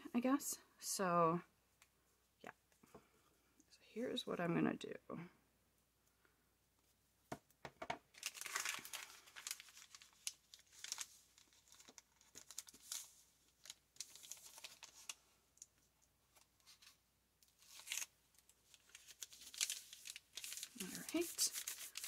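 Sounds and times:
paper bag crinkling: 0:08.1 - 0:15.2, 0:17.6 - 0:22.0.

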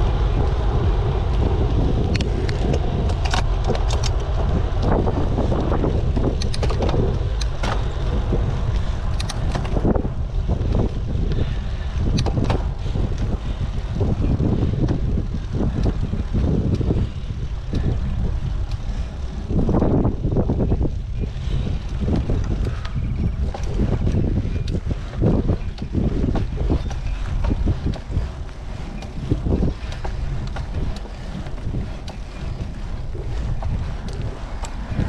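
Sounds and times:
wind buffeting microphone: 0:00.0 - 0:35.0
clicks and rattles: 0:02.1 - 0:05.0, 0:06.1 - 0:07.9.

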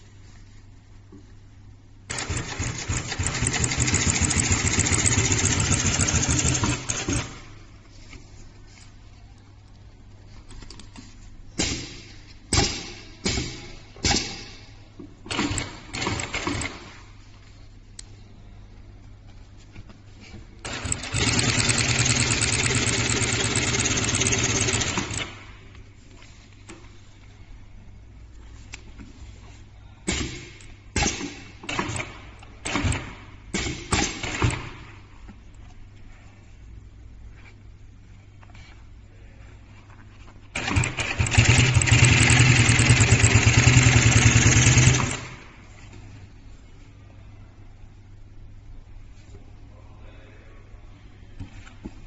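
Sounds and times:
sewing machine stitching: 0:02.1 - 0:07.5, 0:20.6 - 0:25.5, 0:40.5 - 0:45.6
low steady hum: 0:05.8 - 0:20.7, 0:24.0 - 0:41.0, 0:45.0 - 0:52.0.

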